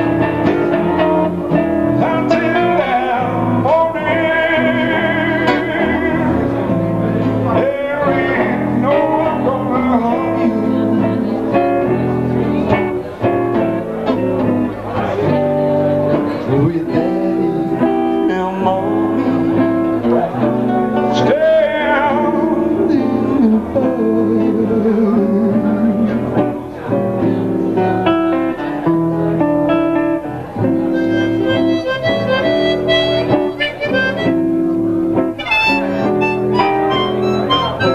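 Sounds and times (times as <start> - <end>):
guitars and acoustic bass: 0.0 - 37.9
harmonica solo: 30.9 - 34.8, 35.4 - 37.9.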